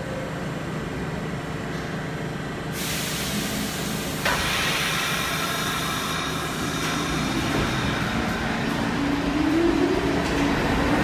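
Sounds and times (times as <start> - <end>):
low hum of standing train: 0.0 - 11.0
air brakes hissing: 2.7 - 8.8.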